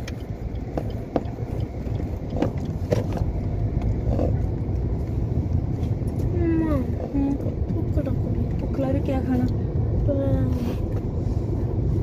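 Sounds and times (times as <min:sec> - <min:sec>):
light irregular clicks: 0:00.0 - 0:04.9
car driving rumble: 0:00.0 - 0:12.0.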